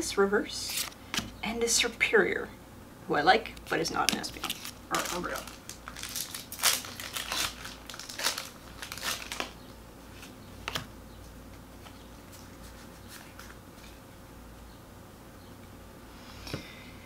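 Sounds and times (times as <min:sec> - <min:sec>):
foil wrapper crinkling: 0:03.6 - 0:10.3.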